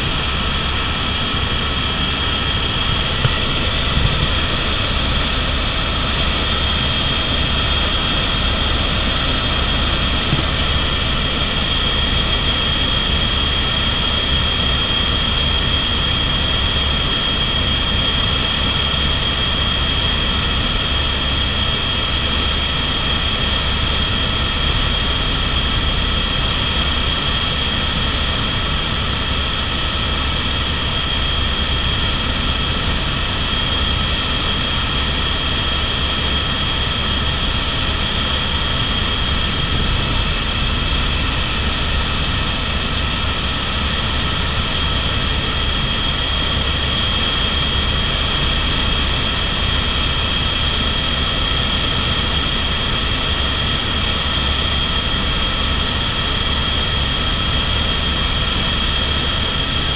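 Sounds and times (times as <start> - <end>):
main rotor rumble: 0.0 - 12.4
helicopter turbine whine: 0.0 - 59.9.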